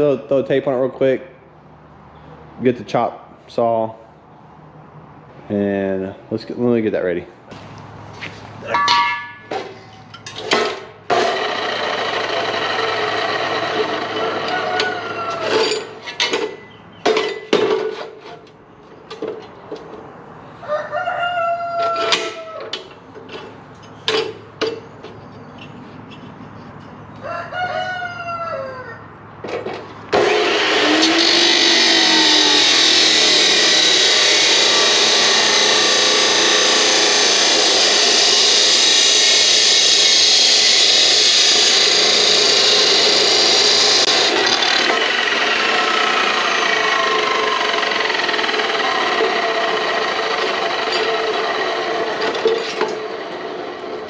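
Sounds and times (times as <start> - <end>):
chop saw cutting steel: 10.4 - 16.6, 30.1 - 54.0
rooster crowing: 14.0 - 15.8, 20.6 - 22.7, 27.2 - 29.1.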